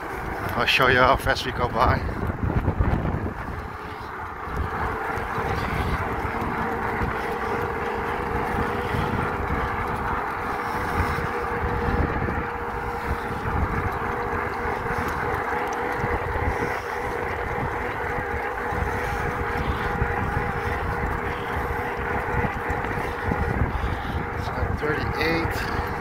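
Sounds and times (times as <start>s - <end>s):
steady motor hum: 0.0s - 26.0s
wind rushing over microphone: 0.0s - 26.0s.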